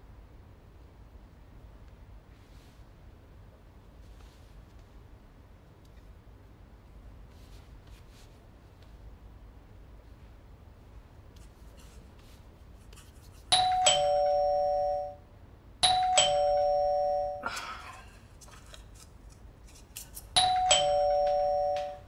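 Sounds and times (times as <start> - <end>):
two-tone doorbell chime: 13.5 - 17.5, 20.4 - 22.0.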